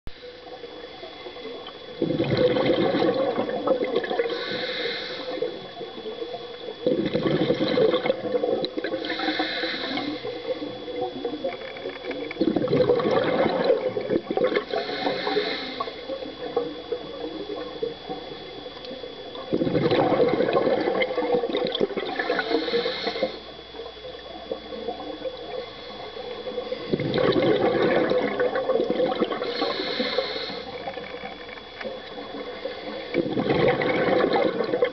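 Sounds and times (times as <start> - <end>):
exhaled bubbles gushing: 0.5 - 4.6, 5.2 - 34.9
regulator inhale hiss: 4.1 - 6.2, 8.9 - 11.0, 14.5 - 18.4, 22.1 - 23.6, 29.2 - 31.3, 32.4 - 33.4.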